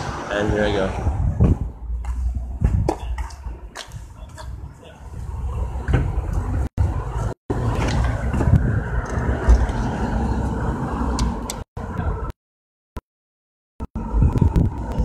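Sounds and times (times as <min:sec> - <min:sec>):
cars going by: 0:00.0 - 0:03.9, 0:04.9 - 0:12.3.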